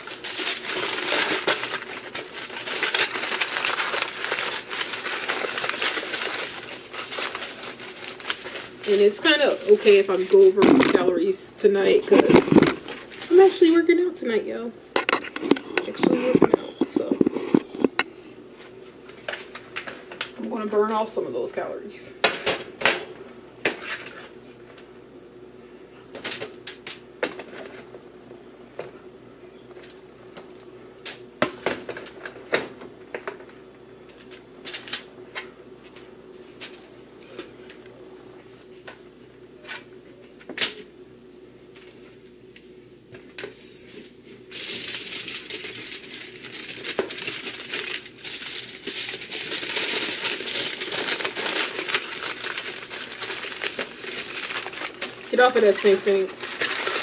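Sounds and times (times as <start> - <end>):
aluminum foil crinkling: 0.0 - 10.9, 34.1 - 37.8, 44.4 - 57.0
faint steady hum: 0.0 - 57.0.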